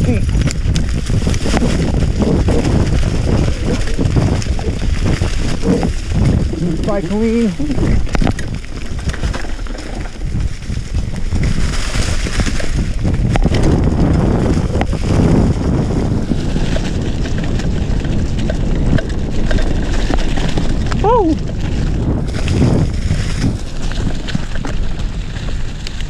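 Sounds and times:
tyres rumbling over rock and dirt: 0.0s - 26.0s
wind rushing over microphone: 0.0s - 26.0s
bike jolting knocks and clicks: 7.3s - 26.0s.

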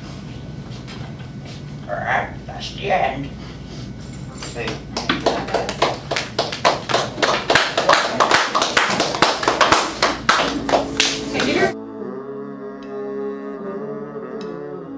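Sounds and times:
small group clapping: 4.5s - 11.8s.

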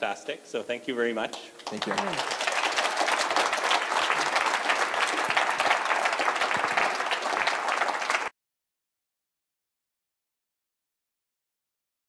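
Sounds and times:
audience applauding: 1.6s - 8.3s.

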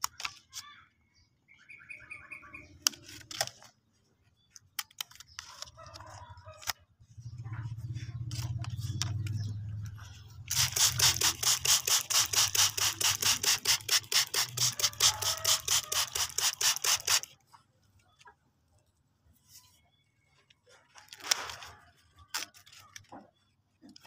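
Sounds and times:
spray bottle squirting water: 10.5s - 17.3s.

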